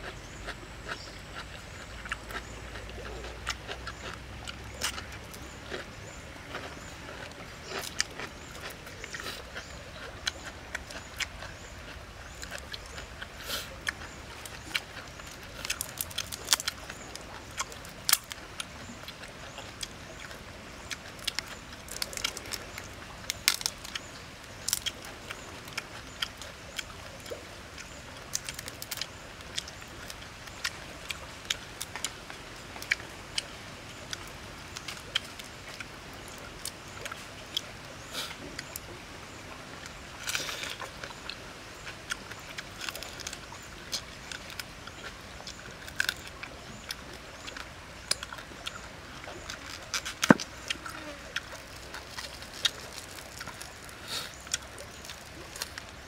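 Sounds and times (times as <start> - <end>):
prawn shells cracking: 13.9 - 18.5, 21.0 - 25.4, 28.2 - 30.6, 42.8 - 46.4, 48.1 - 56.0.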